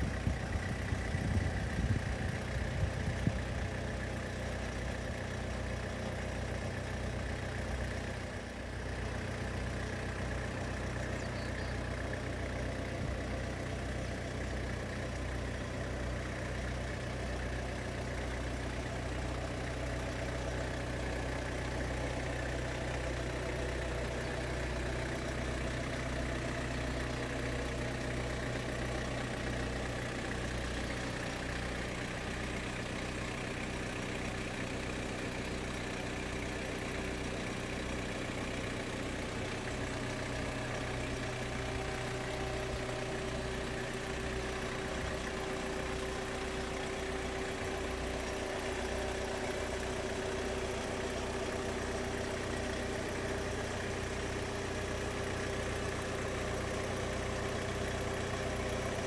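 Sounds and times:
vehicle engine idling: 0.0s - 59.0s.

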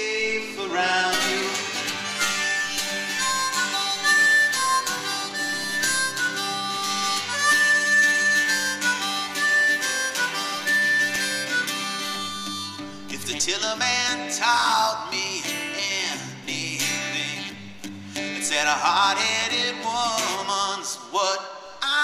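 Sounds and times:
harmonica solo: 0.0s - 14.5s
strummed acoustic guitar: 0.0s - 22.0s.

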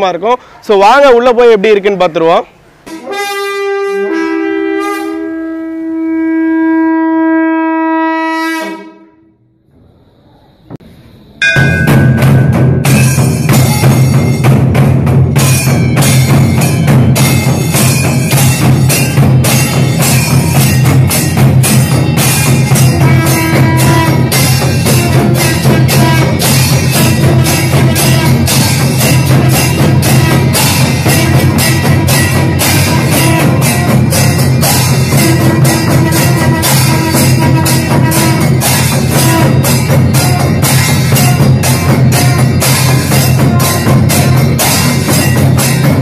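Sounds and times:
horn-like wind instrument note: 2.9s - 9.5s, 22.2s - 46.0s
music with heavy drum beat: 11.4s - 46.0s.

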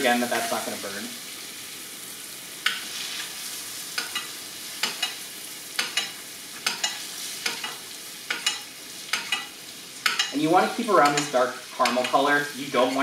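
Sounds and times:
butter sizzling in a skillet: 0.0s - 13.0s
spoon scraping and tapping pan: 2.6s - 2.9s, 4.0s - 5.2s, 5.8s - 13.0s.

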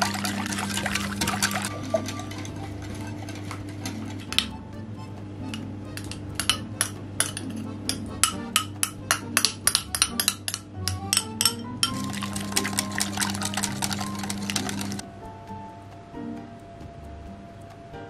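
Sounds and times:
metal spoon clinking in glass bowl: 8.2s - 15.0s.

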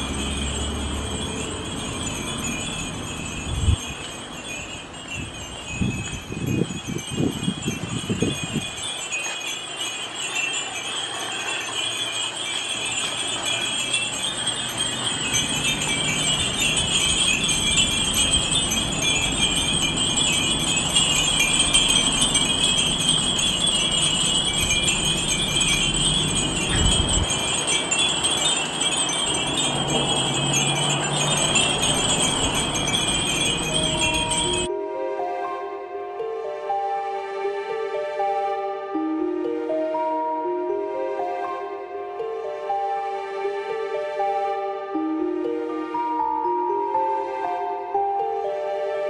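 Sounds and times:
glass wind chimes tinkling: 0.0s - 34.7s.

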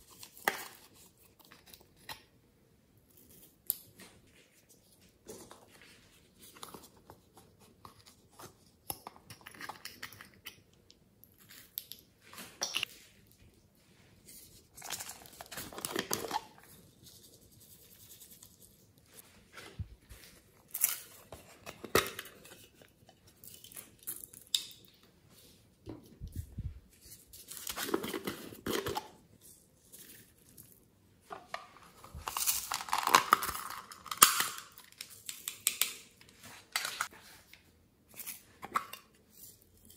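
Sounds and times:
plastic packaging crinkling: 31.9s - 35.7s.

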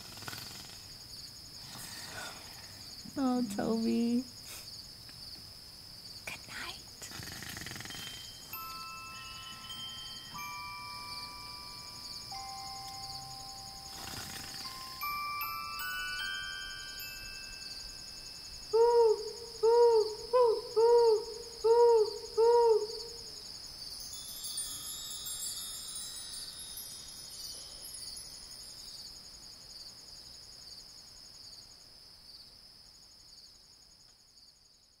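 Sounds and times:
night insects chirring: 0.0s - 35.0s
owl hooting: 13.6s - 15.0s, 18.7s - 23.3s.

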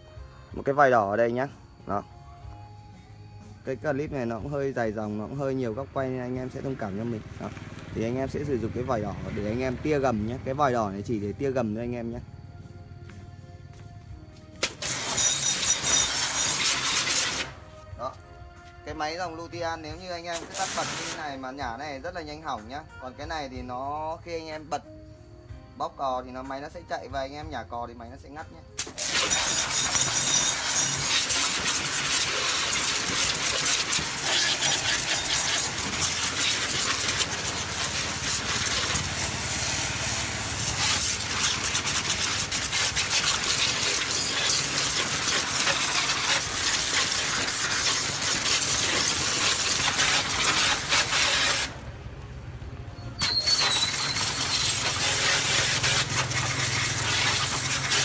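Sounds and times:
pressure washer spray hiss: 14.6s - 17.8s, 20.3s - 21.6s, 28.8s - 51.9s, 53.2s - 58.0s
pump motor humming: 28.8s - 51.8s, 53.2s - 58.0s.

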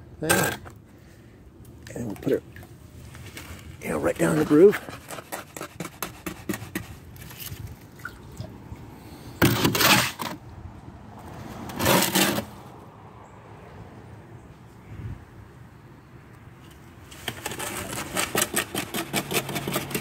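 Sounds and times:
shovel scraping wet cement: 3.2s - 7.6s, 9.4s - 10.4s, 11.7s - 12.6s, 17.1s - 20.0s.

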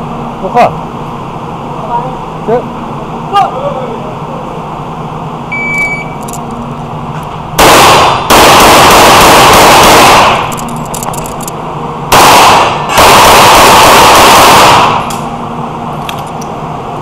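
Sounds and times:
shot timer beep: 5.5s - 6.2s
rapid pistol fire: 7.6s - 10.6s, 12.1s - 15.2s.

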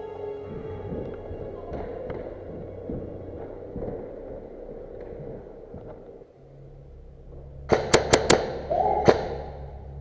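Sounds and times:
airsoft rifle shots: 7.7s - 9.4s.

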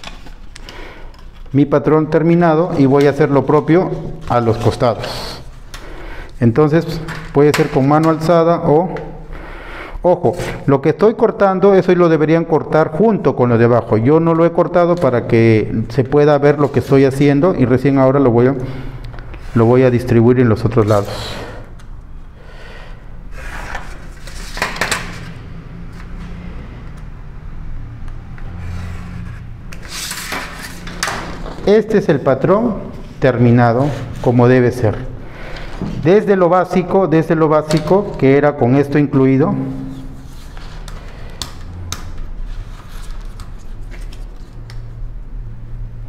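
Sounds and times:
paper rustling: 2.6s - 5.6s, 42.4s - 44.8s.

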